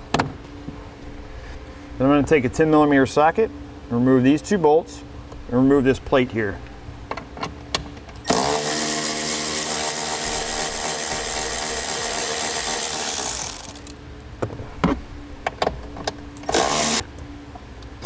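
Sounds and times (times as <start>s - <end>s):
drill driver running: 8.3s - 14.0s, 16.4s - 17.1s.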